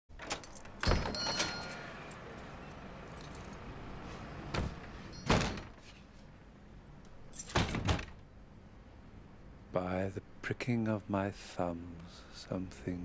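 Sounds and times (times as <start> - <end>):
keys jingling: 0.2 - 3.7, 7.2 - 7.6.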